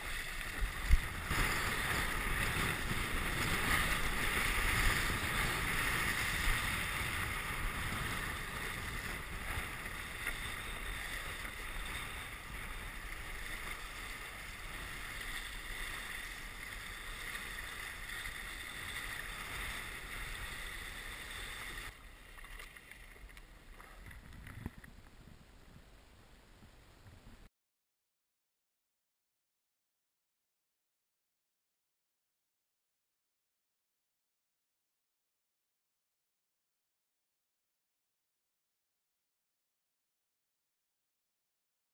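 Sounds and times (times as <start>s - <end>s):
water rushing past board: 0.0s - 24.9s.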